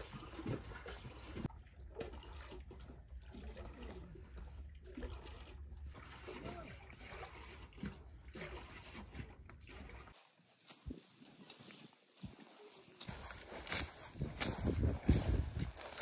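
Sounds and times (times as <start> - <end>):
liquid sloshing in a churn: 0.0 - 10.2.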